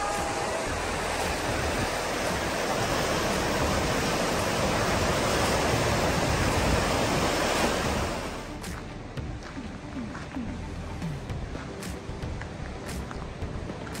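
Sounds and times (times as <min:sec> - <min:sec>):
river rapids rushing: 0:00.0 - 0:08.7.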